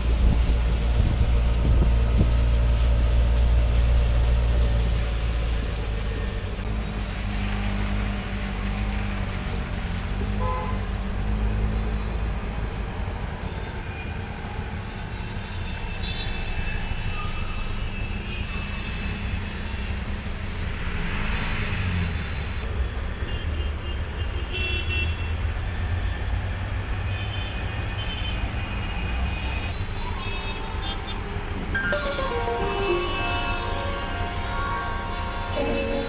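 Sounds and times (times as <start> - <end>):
water splashing: 0.0 - 11.8
auto-rickshaw engine rumbling: 0.0 - 36.0
car horns tooting: 29.6 - 36.0.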